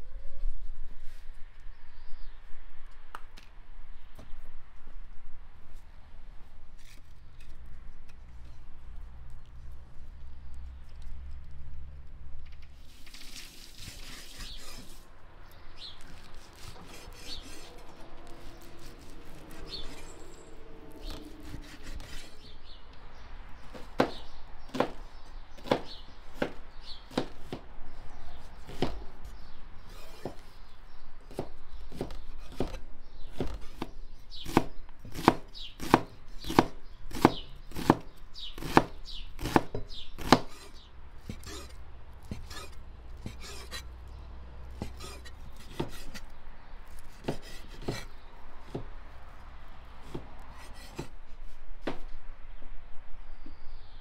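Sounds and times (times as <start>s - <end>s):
cleaver chopping on wooden board: 23.7s - 25.0s, 25.6s - 27.7s, 28.7s - 29.1s, 31.3s - 43.8s, 44.8s - 46.3s, 47.1s - 48.9s, 50.0s - 51.1s.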